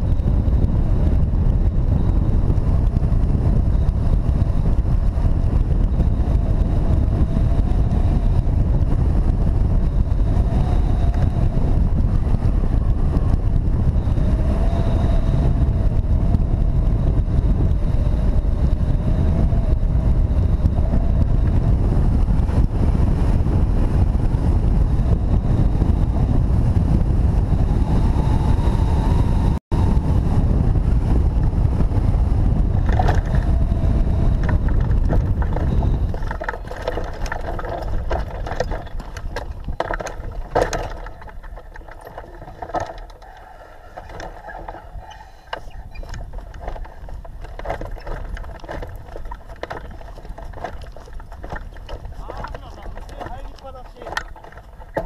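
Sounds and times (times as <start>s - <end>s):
wind rushing over microphone: 0.0s - 55.0s
faint wavering airflow whistle: 43.2s - 46.2s.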